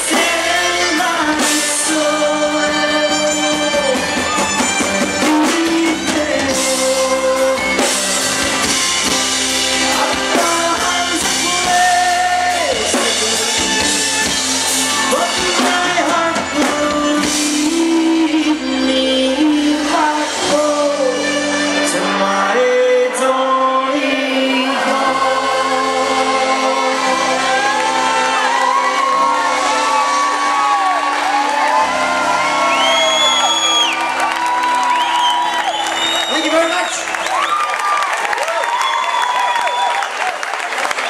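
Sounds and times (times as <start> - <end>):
crowd shouting and whooping: 0.0 - 17.3, 26.1 - 41.0
person singing: 0.0 - 33.2
accordion long notes: 0.0 - 37.3
folk-rock band playing: 0.0 - 38.1.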